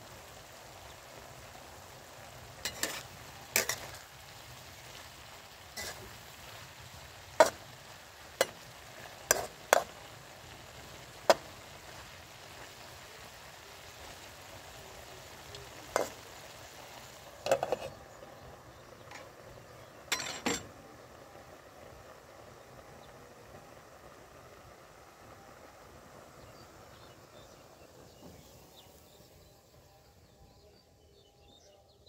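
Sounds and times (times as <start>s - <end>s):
frying sizzle: 0.0s - 32.0s
metal spatula scraping wok: 2.6s - 4.0s, 5.7s - 10.0s, 15.9s - 16.2s, 17.4s - 18.0s, 20.1s - 20.7s
glass lid clattering onto wok: 20.1s - 20.7s.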